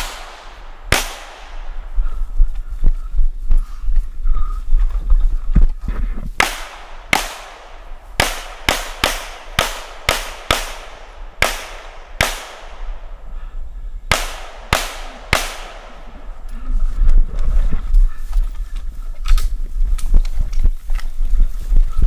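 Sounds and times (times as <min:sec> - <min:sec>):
pistol shots echoing: 0:00.0 - 0:02.1, 0:06.4 - 0:13.3, 0:14.1 - 0:16.4.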